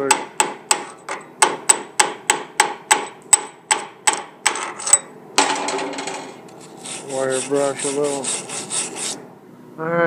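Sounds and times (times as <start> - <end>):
scraping on metal: 4.6 - 9.2.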